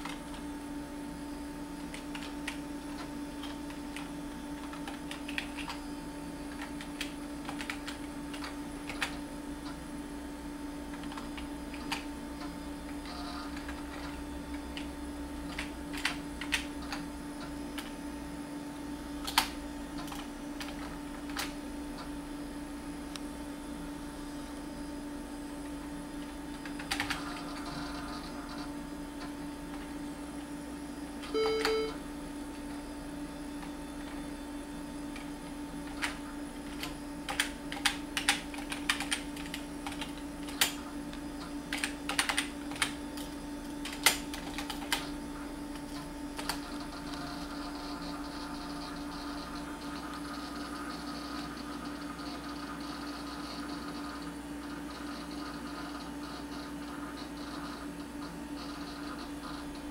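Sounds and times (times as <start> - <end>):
steady machine hum: 0.0 - 59.9
computer keyboard keystrokes: 1.8 - 5.8, 6.5 - 9.2, 10.9 - 12.1, 15.5 - 17.0, 19.2 - 21.5, 26.5 - 27.7, 35.9 - 40.8, 41.7 - 45.1, 45.8 - 47.2
short computer beep: 31.3 - 32.0.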